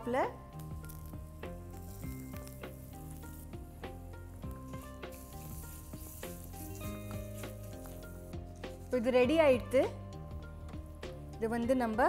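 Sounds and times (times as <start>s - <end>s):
leaves sizzling in hot oil: 0.0s - 11.5s
background music: 0.0s - 12.0s
spatula stirring: 0.6s - 9.7s.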